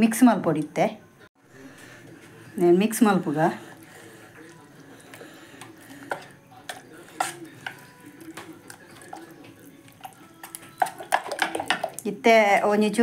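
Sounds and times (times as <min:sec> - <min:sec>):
spoon stirring thick batter: 0:01.4 - 0:12.2
spoon clinking against steel bowl: 0:05.5 - 0:12.1.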